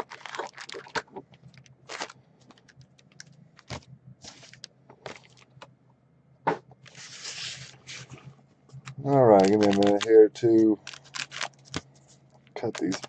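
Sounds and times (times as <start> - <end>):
pack wrappers rustling: 0.0 - 5.7, 8.8 - 13.0.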